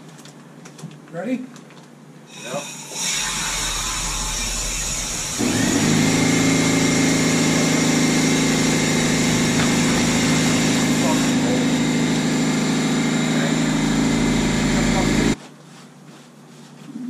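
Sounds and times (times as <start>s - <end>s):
air motor humming: 2.3s - 15.4s.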